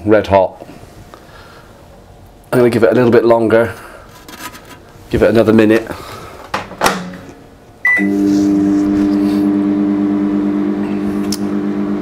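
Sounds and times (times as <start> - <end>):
microwave oven humming: 7.8 - 12.0.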